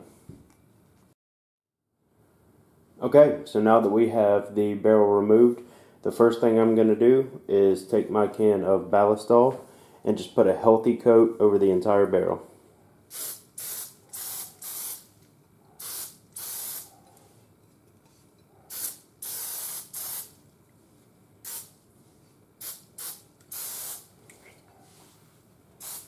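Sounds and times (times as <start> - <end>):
aerosol spray hissing: 13.1 - 15.1, 15.8 - 17.0, 18.7 - 20.4, 21.4 - 21.8, 22.6 - 24.1, 25.8 - 26.0.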